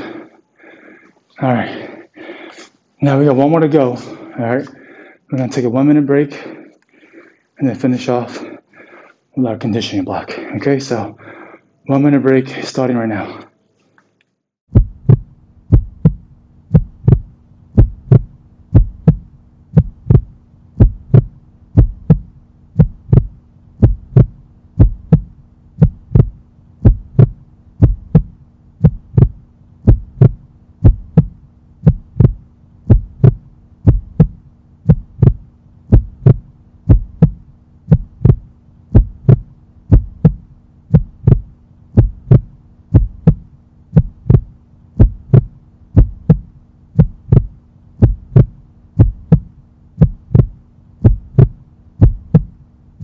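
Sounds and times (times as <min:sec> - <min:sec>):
low steady hum: 0:00.0 - 0:13.8, 0:14.7 - 0:53.0
heartbeat thumping: 0:14.7 - 0:52.7.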